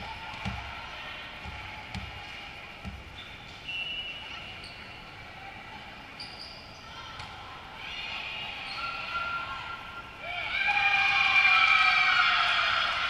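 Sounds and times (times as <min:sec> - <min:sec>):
murmur of gym hall: 0:00.0 - 0:13.0
volleyball bouncing on gym floor: 0:00.2 - 0:00.8, 0:01.4 - 0:03.2.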